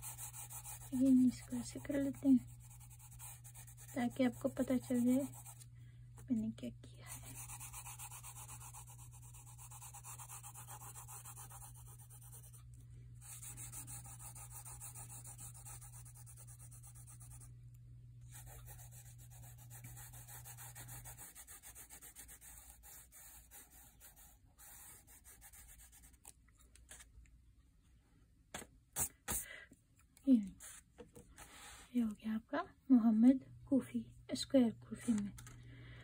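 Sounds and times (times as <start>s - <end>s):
pencil shading on paper: 0.0s - 5.6s, 7.2s - 12.6s, 13.2s - 17.5s, 18.3s - 26.2s
low steady hum: 0.0s - 36.0s.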